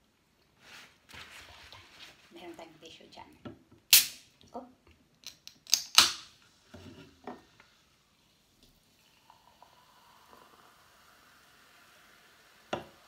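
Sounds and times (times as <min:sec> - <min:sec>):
can cracking open with fizz: 0:03.9 - 0:04.3
soda fizzing in glass: 0:07.8 - 0:13.0.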